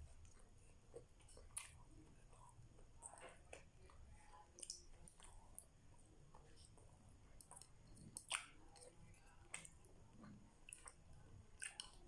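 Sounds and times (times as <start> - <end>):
faint chewing: 0.0 - 12.0
wet mouth smacks: 11.6 - 12.0.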